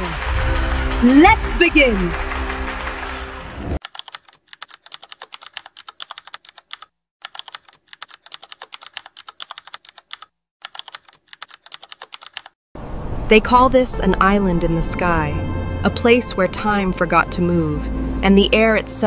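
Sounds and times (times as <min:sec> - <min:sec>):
keyboard key clicks: 0:03.8 - 0:12.5.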